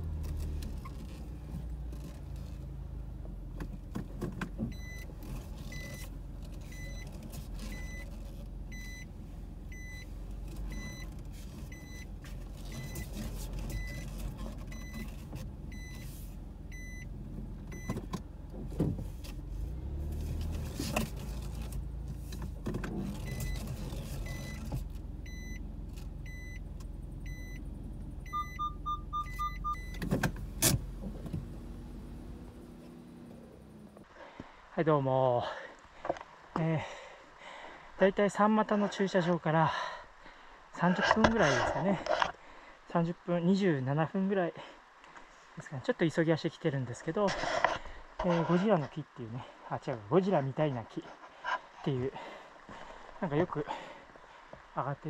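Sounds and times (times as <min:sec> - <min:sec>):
car rumbling in cabin: 0:00.0 - 0:34.1
electronic warning beep: 0:06.7 - 0:07.0, 0:07.7 - 0:08.0, 0:08.7 - 0:09.0, 0:09.7 - 0:10.0, 0:10.7 - 0:11.0, 0:11.7 - 0:12.0, 0:16.7 - 0:17.1, 0:25.3 - 0:25.6, 0:26.2 - 0:26.6, 0:27.2 - 0:27.6, 0:28.2 - 0:30.0.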